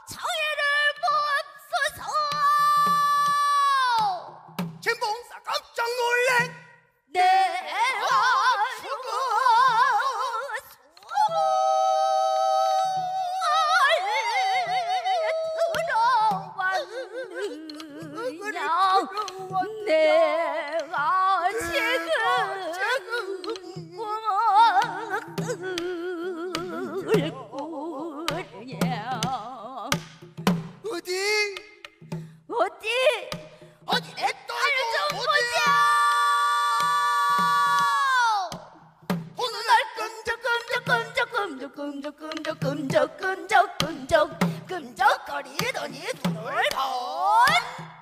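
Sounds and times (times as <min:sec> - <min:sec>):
woman singing with heavy vibrato: 0:00.0 - 0:04.5, 0:07.1 - 0:30.0, 0:32.4 - 0:38.7, 0:39.4 - 0:48.0.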